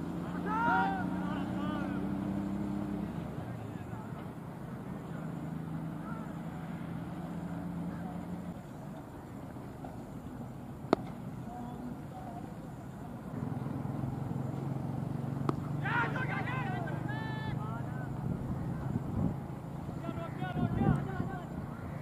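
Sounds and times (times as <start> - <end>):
faint voices: 0.2 - 2.2, 3.0 - 14.8, 15.6 - 22.0
cricket bat striking ball: 10.8 - 11.4, 15.3 - 16.2.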